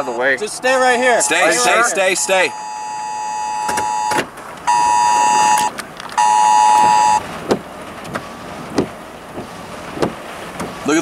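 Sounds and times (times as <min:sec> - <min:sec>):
phone emergency alert tone: 0:00.0 - 0:00.4, 0:01.2 - 0:07.2.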